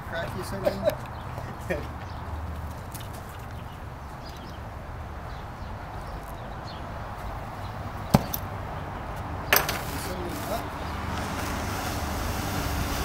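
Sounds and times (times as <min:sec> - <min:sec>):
cutting torch hissing: 0:10.3 - 0:13.0.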